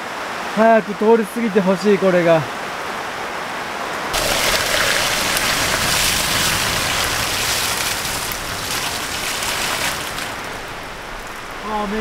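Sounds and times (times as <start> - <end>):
heavy rain hissing: 4.0 - 12.0
wind rumbling on microphone: 4.1 - 12.0.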